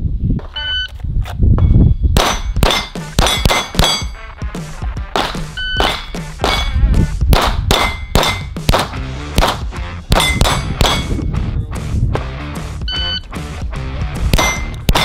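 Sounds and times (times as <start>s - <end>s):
rapid pistol fire: 2.2s - 4.0s, 5.1s - 11.2s, 14.3s - 15.0s
steel plate clanging: 2.2s - 4.3s, 5.2s - 6.8s, 7.7s - 8.6s, 10.2s - 11.2s, 14.4s - 15.0s.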